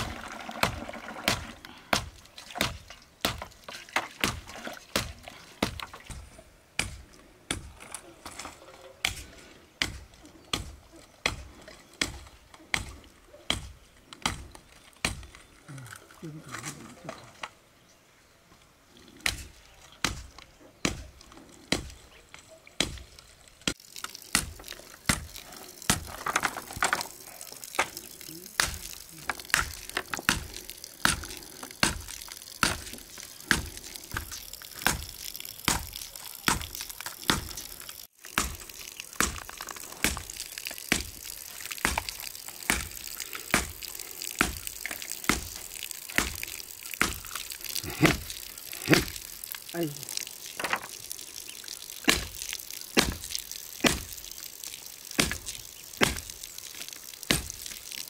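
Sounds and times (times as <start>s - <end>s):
blade chopping bamboo: 38.2s - 40.3s, 46.2s - 47.3s, 52.1s - 52.4s, 53.0s - 54.2s, 55.2s - 56.3s, 57.3s - 57.7s.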